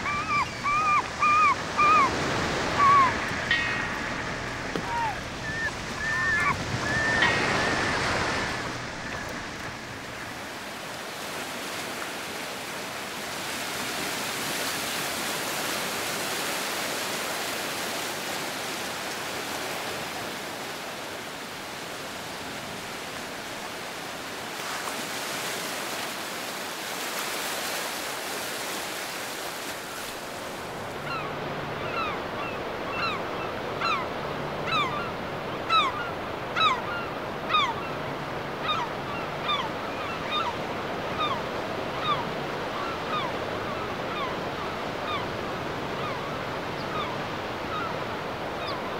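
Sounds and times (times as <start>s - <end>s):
falling bird chirps: 0.0s - 9.3s
sea surf on sandy beach: 0.0s - 48.9s.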